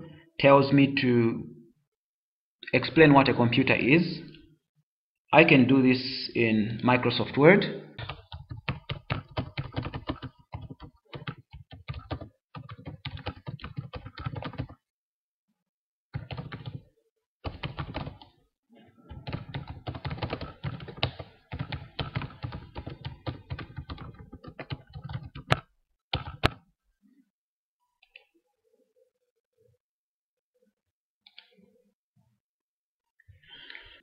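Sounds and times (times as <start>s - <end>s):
keyboard typing: 8.0s - 14.8s, 16.2s - 16.8s, 17.4s - 18.3s, 19.1s - 26.6s.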